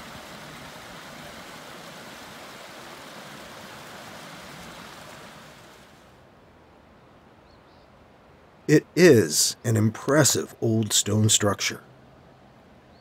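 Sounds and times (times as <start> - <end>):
stream water rushing: 0.0 - 6.4.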